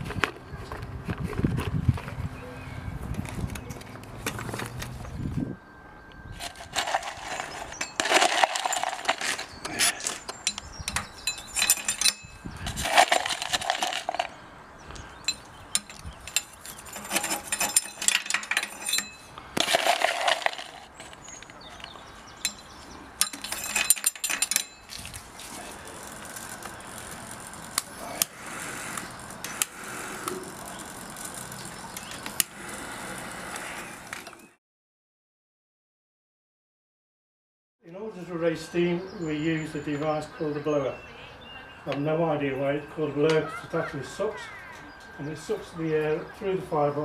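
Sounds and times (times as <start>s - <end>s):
coal clinking and rattling: 6.4s - 14.4s, 15.2s - 34.5s.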